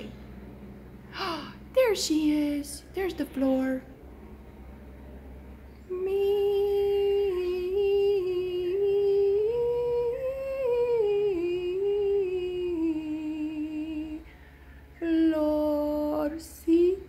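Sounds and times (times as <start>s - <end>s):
person humming: 1.1s - 1.6s.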